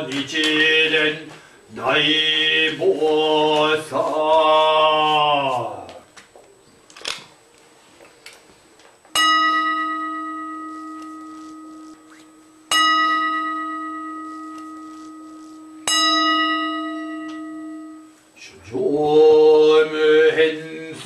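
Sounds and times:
bowl bell ringing: 0:09.2 - 0:18.2.

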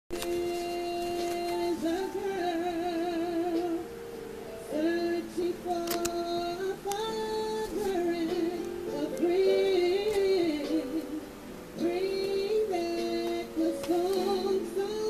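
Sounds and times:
woman singing with vibrato: 0:00.2 - 0:04.0, 0:04.6 - 0:15.0.

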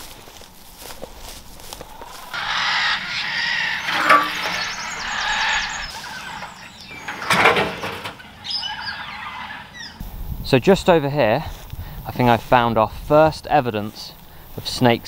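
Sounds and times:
birds calling: 0:01.8 - 0:10.0
metal sheet scraping: 0:02.4 - 0:08.2.

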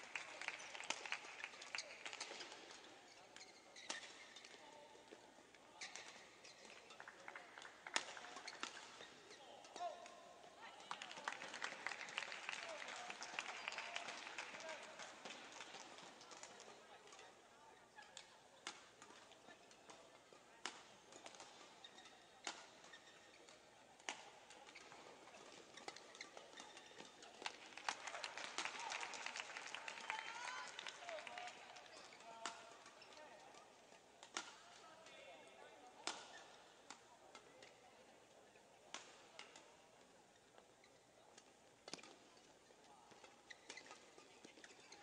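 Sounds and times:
shoes squeaking on court: 0:03.0 - 0:07.1, 0:07.9 - 0:09.5, 0:20.9 - 0:27.6, 0:40.3 - 0:45.0
racket hitting shuttlecock: 0:34.2 - 0:34.7, 0:36.0 - 0:37.7.

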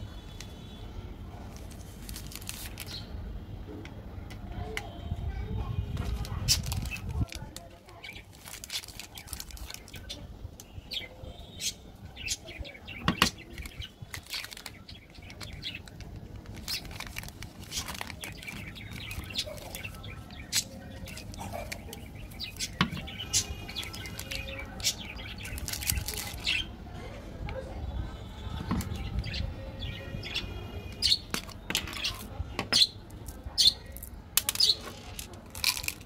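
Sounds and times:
plastic wrappers crinkling: 0:01.4 - 0:03.1, 0:06.0 - 0:10.2, 0:13.2 - 0:26.7, 0:33.2 - 0:36.0.

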